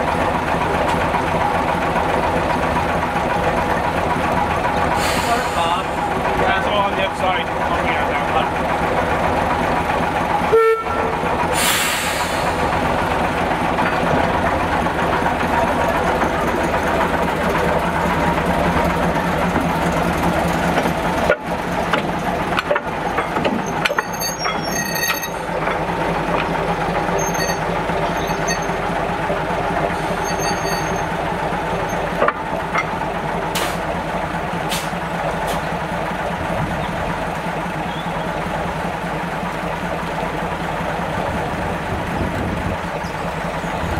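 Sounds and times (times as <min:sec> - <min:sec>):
diesel locomotive engines running: 0:00.0 - 0:43.9
air hiss: 0:05.0 - 0:05.9, 0:11.5 - 0:12.7.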